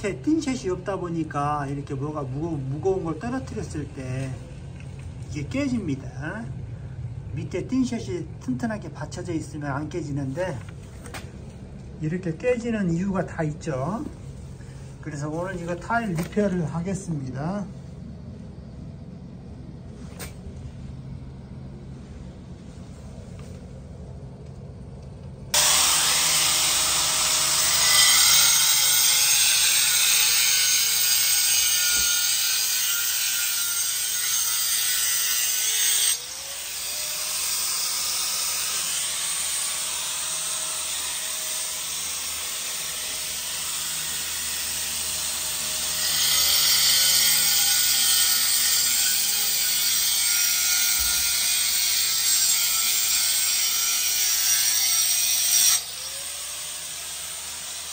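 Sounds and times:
angle grinder cutting tile: 0:25.6 - 0:57.9.

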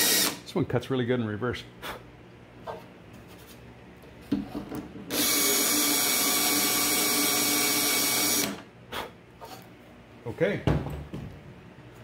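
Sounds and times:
power drill running: 0:00.0 - 0:00.4, 0:05.1 - 0:08.6.

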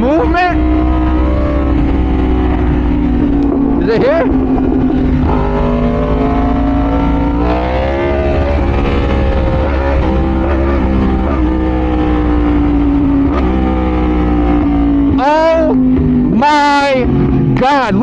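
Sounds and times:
wind rush on microphone: 0:00.0 - 0:15.5
motorcycle engine cruising: 0:00.0 - 0:18.0.

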